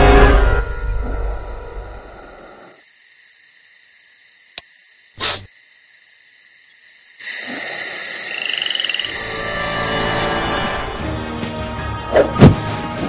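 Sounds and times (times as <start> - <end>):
night ambience: 0.0 - 13.0
insect-like chirring: 0.8 - 10.7.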